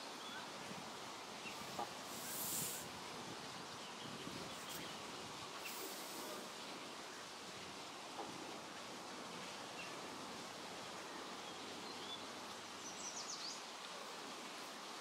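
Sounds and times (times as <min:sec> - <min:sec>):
outdoor background noise: 0:00.0 - 0:15.0
loud hiss: 0:01.4 - 0:03.2, 0:04.5 - 0:06.7.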